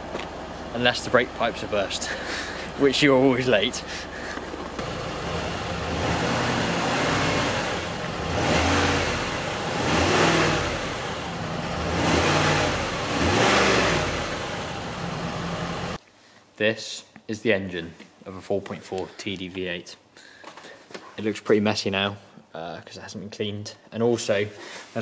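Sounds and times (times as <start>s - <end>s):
diesel engine idling and revving: 0.0s - 16.0s.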